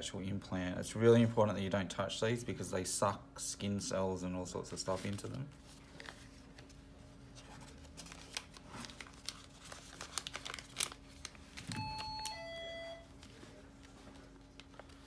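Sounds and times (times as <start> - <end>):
plastic packet crinkling: 7.7 - 12.4.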